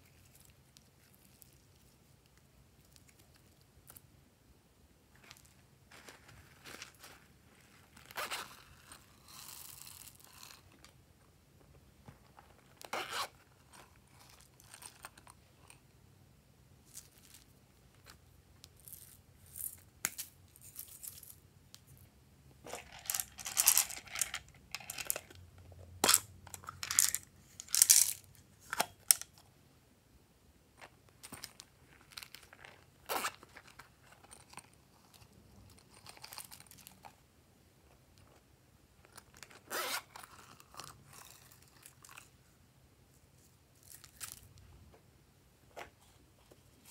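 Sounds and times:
decorations rustling and clicking: 0:05.1 - 0:15.9, 0:16.8 - 0:29.4.

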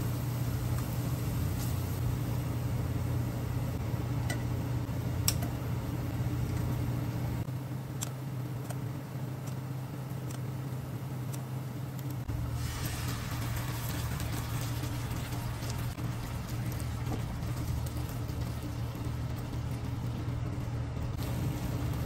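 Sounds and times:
low hum: 0:00.0 - 0:22.0
meat sizzling in a frying pan: 0:12.5 - 0:15.9.

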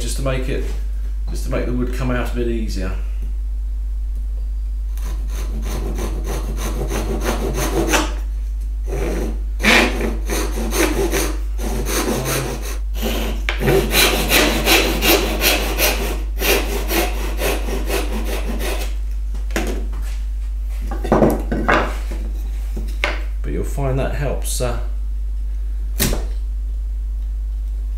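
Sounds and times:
hand saw cutting wood: 0:05.0 - 0:08.2, 0:08.9 - 0:19.0.

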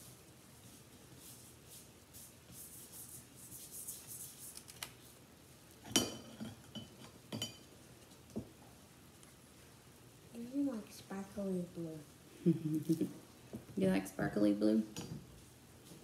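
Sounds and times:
brushes stroking on paper: 0:00.0 - 0:05.2.

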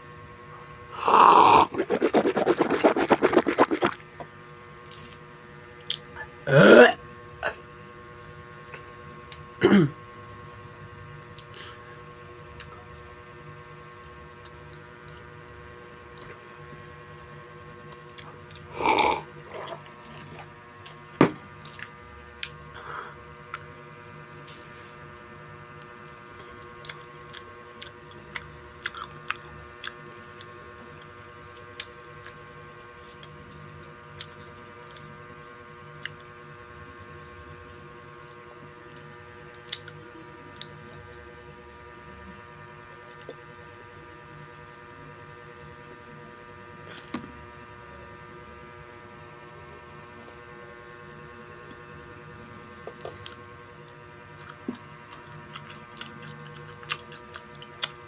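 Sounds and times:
electrical hum: 0:00.0 - 0:58.0
eating and drinking mouth sounds: 0:01.0 - 0:04.0, 0:18.2 - 0:20.5, 0:26.8 - 0:31.1, 0:38.2 - 0:40.8, 0:54.4 - 0:58.0
sip from a mug: 0:01.0 - 0:04.0, 0:18.7 - 0:20.5
chewing clicks: 0:26.8 - 0:30.5, 0:54.4 - 0:58.0.

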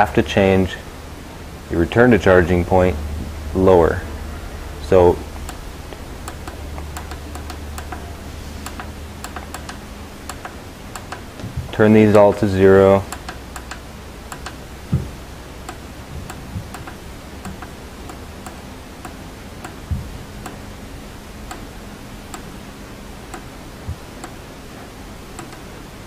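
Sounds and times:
faint steady hum: 0:00.0 - 0:26.0
soft low thumps: 0:00.8 - 0:11.8, 0:13.0 - 0:18.6, 0:19.8 - 0:21.7, 0:23.3 - 0:24.3.

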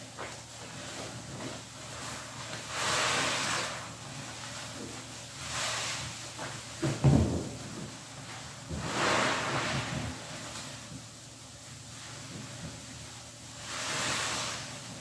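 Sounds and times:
sponge squishing in soapy water: 0:00.8 - 0:06.7, 0:13.6 - 0:15.0.

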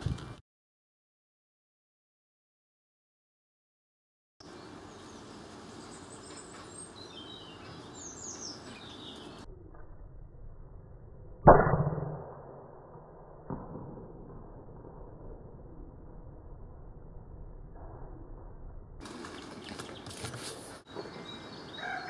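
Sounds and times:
small birds chirping: 0:04.4 - 0:09.5, 0:19.0 - 0:22.0
air rifle shot: 0:11.4 - 0:14.6.

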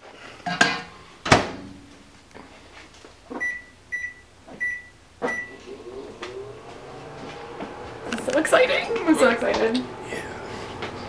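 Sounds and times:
microwave humming: 0:03.3 - 0:11.0
short keypad beeps: 0:03.4 - 0:05.6.

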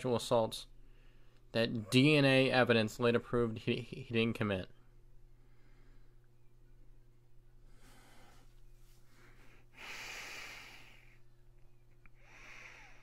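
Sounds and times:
low electrical hum: 0:00.0 - 0:13.0
man breathing: 0:00.8 - 0:01.5, 0:05.3 - 0:06.5, 0:07.6 - 0:11.4, 0:12.1 - 0:13.0.

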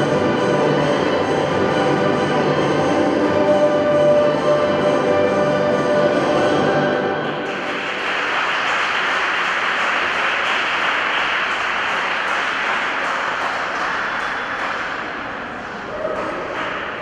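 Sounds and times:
audience applauding: 0:07.4 - 0:15.4, 0:16.0 - 0:17.0.

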